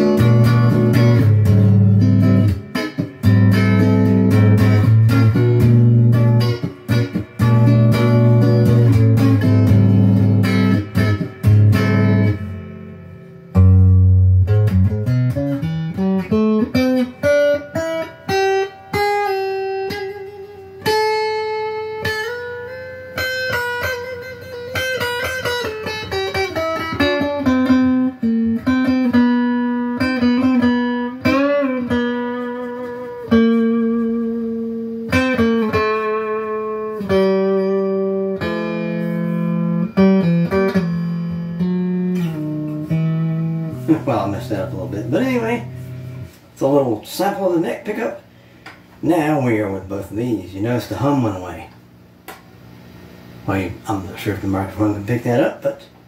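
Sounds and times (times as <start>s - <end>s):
clean electric guitar: 0.0s - 56.0s.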